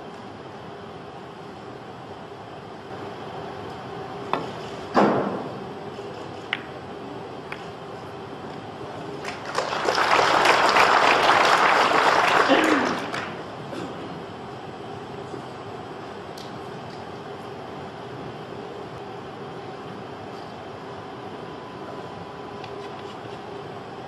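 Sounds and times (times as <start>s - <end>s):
audience applauding: 9.2s - 13.4s.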